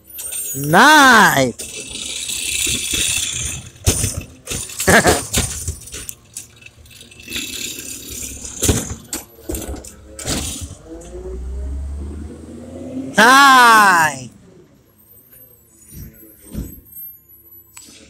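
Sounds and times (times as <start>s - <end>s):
truck engine drone: 0.0s - 18.0s
recyclables clattering into hopper: 1.6s - 10.8s.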